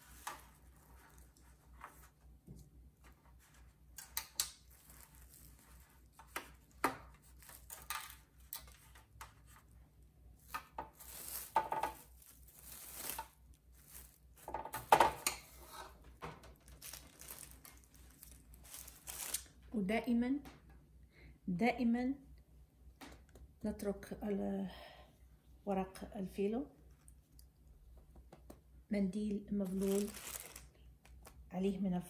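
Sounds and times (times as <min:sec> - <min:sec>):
cling film rustling and crinkling: 0:00.0 - 0:09.8, 0:10.4 - 0:14.9, 0:15.8 - 0:19.7, 0:29.6 - 0:31.4.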